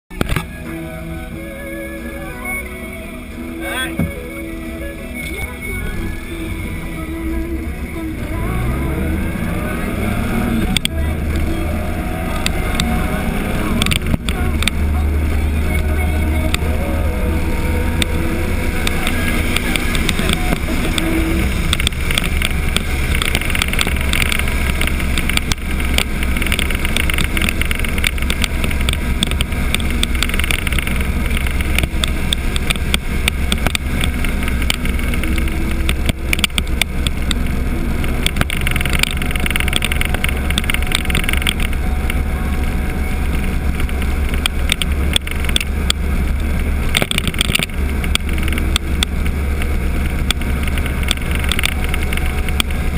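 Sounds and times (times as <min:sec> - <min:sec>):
motorcycle engine: 0:00.1 - 0:52.9
small crackles: 0:18.0 - 0:52.9.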